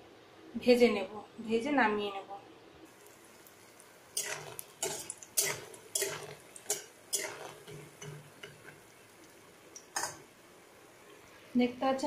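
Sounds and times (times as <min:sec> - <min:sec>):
metal spatula scraping a pan: 0:04.1 - 0:08.9, 0:10.0 - 0:10.2.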